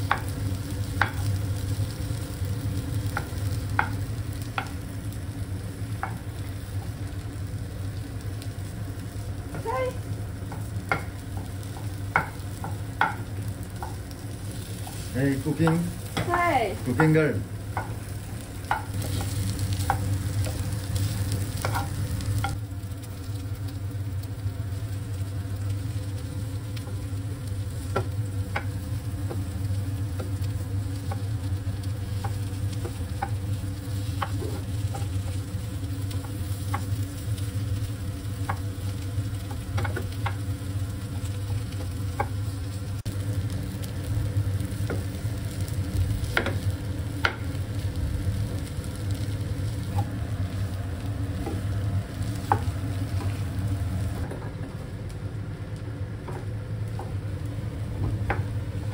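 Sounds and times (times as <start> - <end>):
steady low hum: 0.0 - 58.9
vegetables sizzling in a pan: 0.0 - 58.9
spatula tapping and scraping pan: 1.0 - 1.3, 3.1 - 4.8, 10.5 - 14.1, 14.8 - 18.0, 18.6 - 20.6, 21.6 - 22.6, 32.1 - 33.4, 34.0 - 35.2, 39.4 - 40.4, 46.3 - 46.6.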